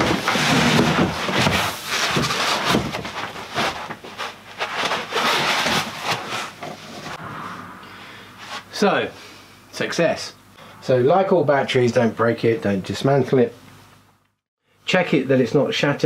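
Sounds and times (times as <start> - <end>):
packing rubbing and knocking: 0.0 - 7.2.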